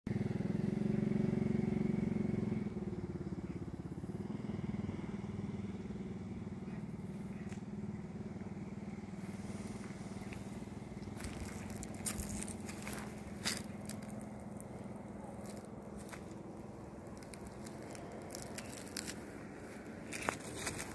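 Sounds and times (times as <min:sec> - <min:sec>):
motor engine humming: 0:00.1 - 0:20.9
sharp crackles: 0:17.0 - 0:20.9.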